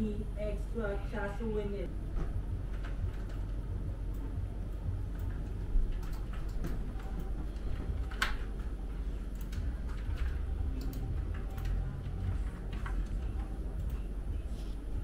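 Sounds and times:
steady low rumble: 0.0s - 15.0s
keyboard and mouse clicks: 5.1s - 7.4s, 8.0s - 8.5s, 9.3s - 14.0s.

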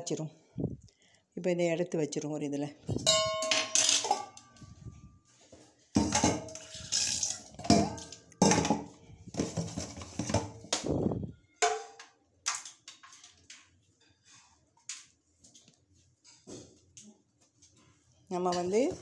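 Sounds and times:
pots and utensils clattering: 3.0s - 4.7s, 5.9s - 10.7s.

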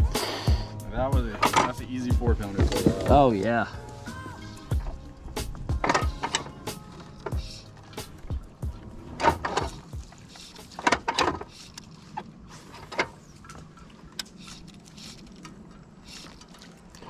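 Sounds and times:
fly line swishing pulls: 3.8s - 17.0s.

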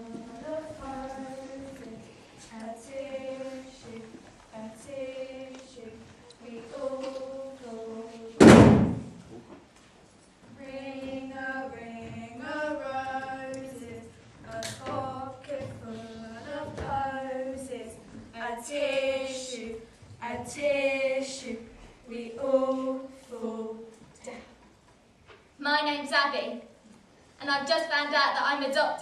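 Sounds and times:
group singing a cappella: 0.0s - 9.1s, 10.6s - 24.5s.

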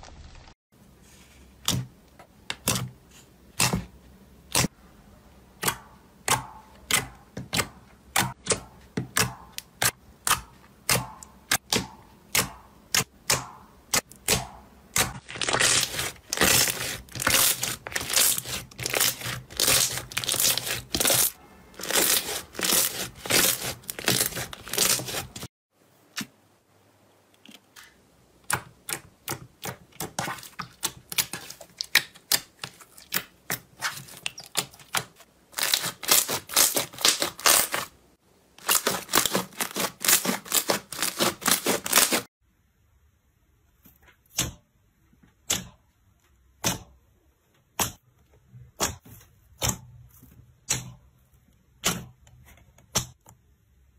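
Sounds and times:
slime squished by hand: 14.2s - 25.5s.

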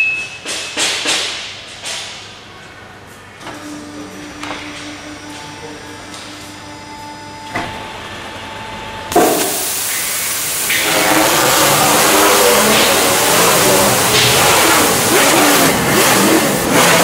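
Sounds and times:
machine hum: 3.4s - 17.0s
wrapping machine mechanical rush: 10.4s - 17.0s.

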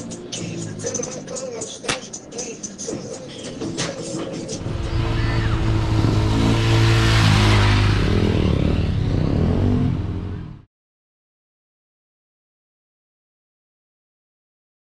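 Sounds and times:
dirt bike engine high revs: 4.6s - 10.5s.

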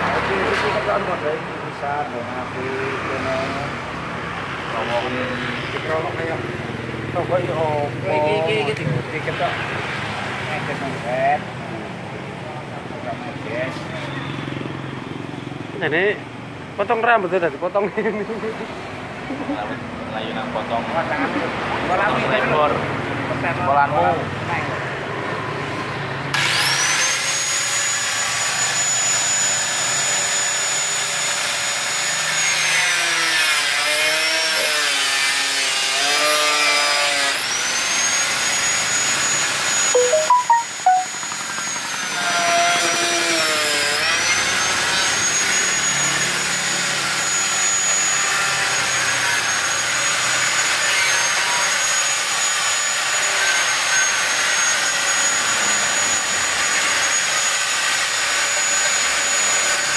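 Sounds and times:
angle grinder cutting metal: 26.3s - 39.6s, 47.8s - 59.9s.

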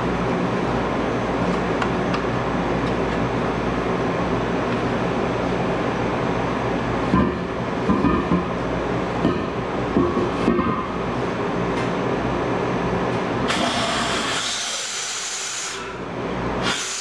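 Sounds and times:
gas rushing through hose: 13.5s - 16.0s, 16.6s - 17.0s.

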